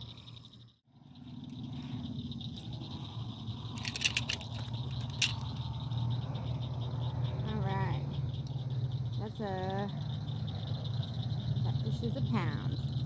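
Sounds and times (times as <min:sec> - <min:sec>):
high insect-like drone: 0:00.0 - 0:13.0
steady low hum: 0:00.0 - 0:13.0
light rattling clicks: 0:03.7 - 0:05.8.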